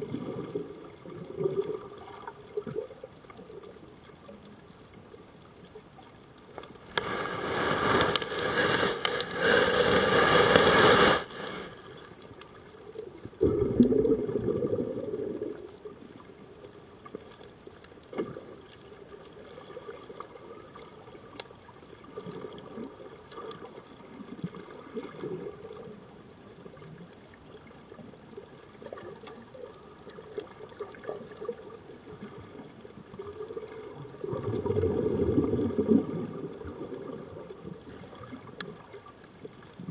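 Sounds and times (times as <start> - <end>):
faint clicks: 2.2 - 7.2, 15.7 - 18.8, 20.3 - 21.6
low bubbling rumble: 13.2 - 16.0, 33.2 - 38.9
regulator exhaled bubbles rushing: 13.4 - 15.7, 34.2 - 37.4.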